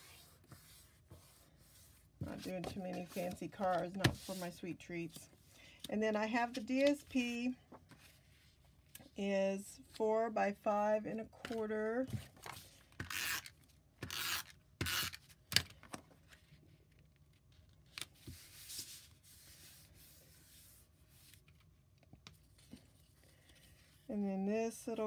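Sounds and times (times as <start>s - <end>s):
paper rustling and rubbing: 0.0s - 4.6s, 18.1s - 21.7s.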